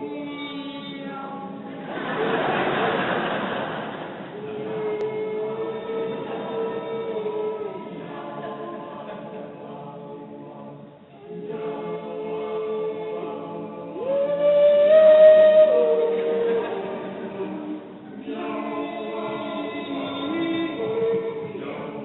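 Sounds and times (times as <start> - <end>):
choir singing held notes: 1.7 - 22.0.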